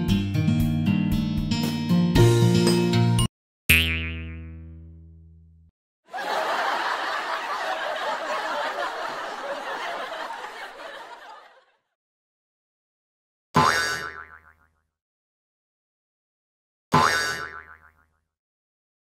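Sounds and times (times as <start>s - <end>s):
laugh track crowd laughing: 6.1s - 11.9s.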